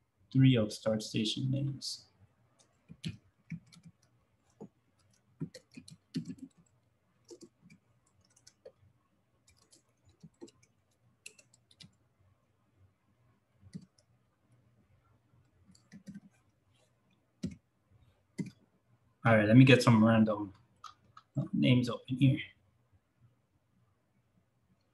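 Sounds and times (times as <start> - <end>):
keyboard typing clicks: 2.9 - 8.7, 9.5 - 12.0, 13.7 - 14.1, 15.7 - 16.3, 18.4 - 18.6.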